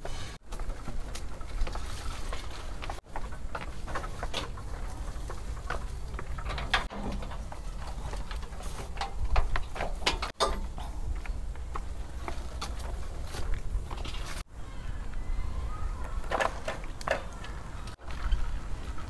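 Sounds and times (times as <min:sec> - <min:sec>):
footsteps on paved path: 0:00.0 - 0:06.4, 0:07.4 - 0:19.0
bicycle being wheeled: 0:00.0 - 0:14.5, 0:15.7 - 0:19.0
metal gate clattering open: 0:06.4 - 0:11.0.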